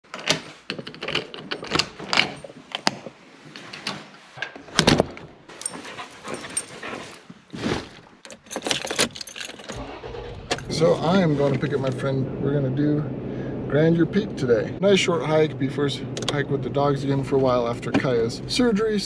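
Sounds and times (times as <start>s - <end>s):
clicks and knocks of handling: 0.1s - 6.7s
keys jangling: 0.2s - 2.9s, 5.5s - 7.1s, 8.2s - 10.7s.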